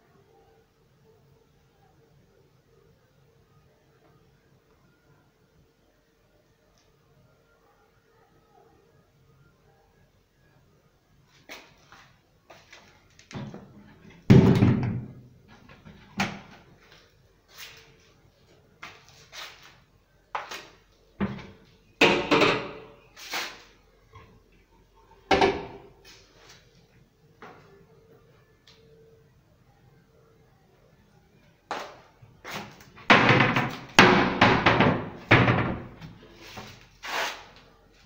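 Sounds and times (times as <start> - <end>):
cabinet doors banging shut: 33.1 - 36.0.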